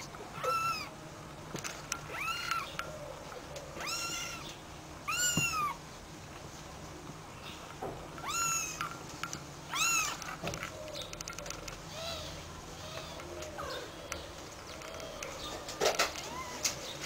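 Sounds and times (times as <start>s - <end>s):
kittens mewing: 0.2s - 0.9s, 2.1s - 2.8s, 3.7s - 5.8s, 8.2s - 8.9s.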